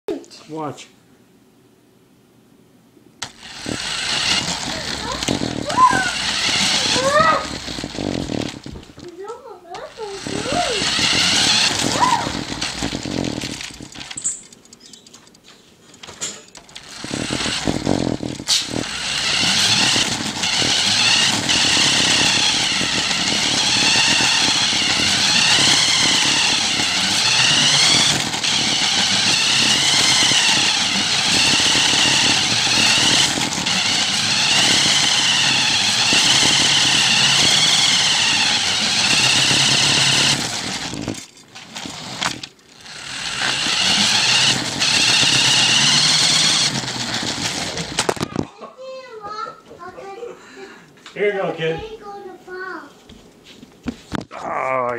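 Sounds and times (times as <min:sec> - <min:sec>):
small electric motor whining: 0:03.2 - 0:15.1, 0:16.6 - 0:48.4.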